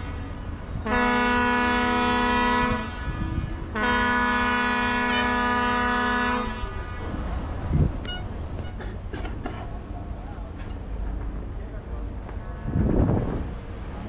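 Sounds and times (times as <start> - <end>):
boat horn blasts: 0.0 - 9.1, 12.4 - 13.1.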